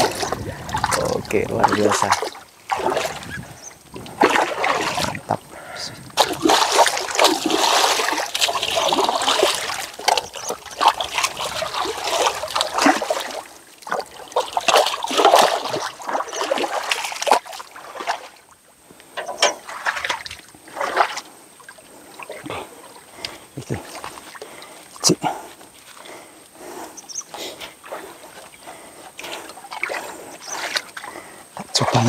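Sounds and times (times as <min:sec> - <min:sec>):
muddy water splashing: 0:00.0 - 0:32.0.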